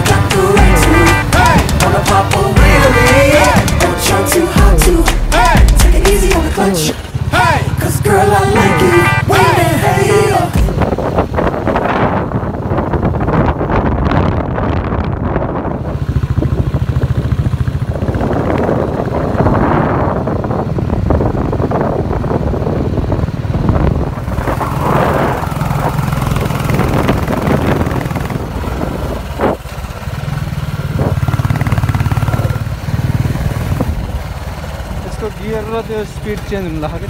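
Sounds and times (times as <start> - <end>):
motorcycle engine running: 0.0 - 37.0
wind noise on microphone: 10.5 - 32.1, 33.3 - 34.4.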